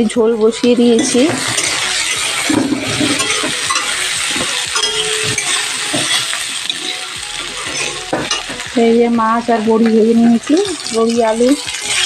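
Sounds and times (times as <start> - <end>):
potatoes sizzling in oil: 0.0 - 12.0
metal spatula scraping pan: 0.6 - 8.7.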